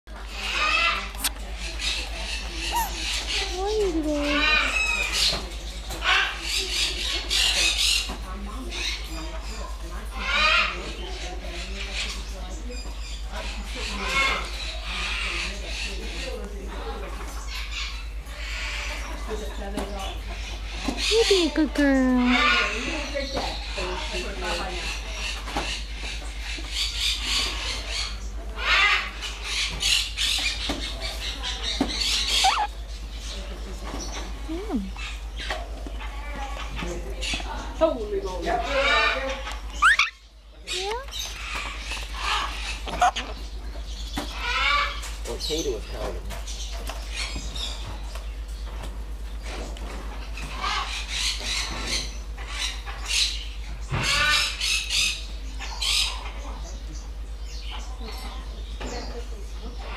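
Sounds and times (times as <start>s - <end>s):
parrot squawky chirps: 2.6s - 5.2s, 32.0s - 32.8s, 38.7s - 43.4s
parrot raspy breathy noises: 32.3s - 32.7s.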